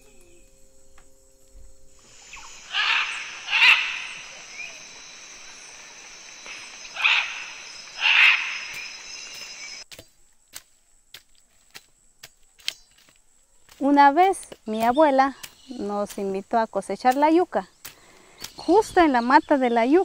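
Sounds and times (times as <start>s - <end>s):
high insect drone: 0.0s - 9.8s
harsh bird calls: 2.0s - 9.8s.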